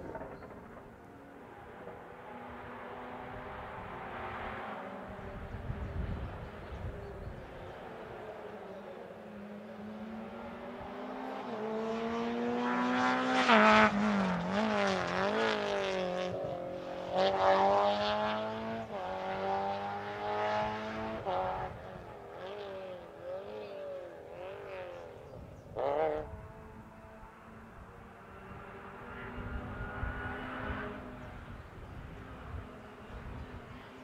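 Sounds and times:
rally car engine revving past: 0:07.4 - 0:34.0.

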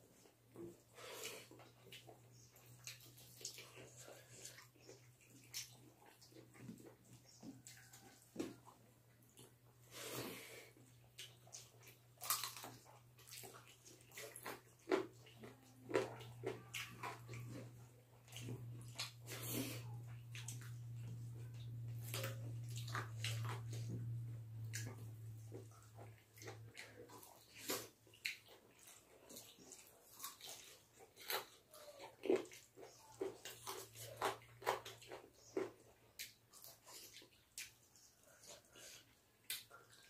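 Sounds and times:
low steady hum: 0:00.0 - 0:31.1
wet chewing and lip smacking: 0:00.1 - 0:09.9, 0:10.7 - 0:40.0.

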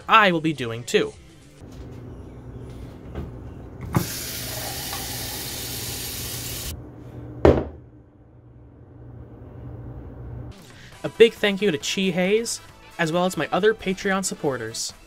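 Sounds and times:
low steady hum: 0:06.7 - 0:10.6
glass set down on countertop: 0:07.4 - 0:07.8.

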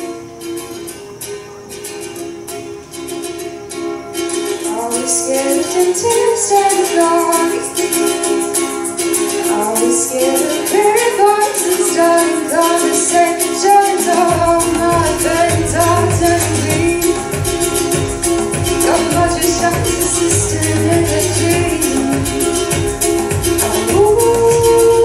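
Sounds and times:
instrumental accompaniment: 0:00.0 - 0:25.0
girl singing into microphone: 0:04.6 - 0:25.0
bass line: 0:14.3 - 0:25.0.

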